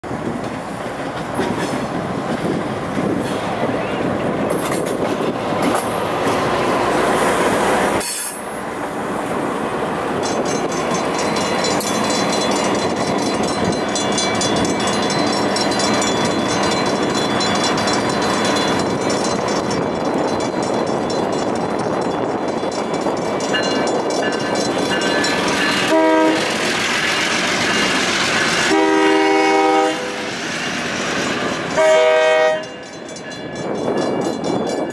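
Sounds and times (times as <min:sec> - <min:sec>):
diesel locomotive approaching: 0:00.0 - 0:34.9
crossing bell ringing: 0:10.0 - 0:34.9
locomotive air horn: 0:25.8 - 0:26.6, 0:28.6 - 0:30.3, 0:31.8 - 0:32.8.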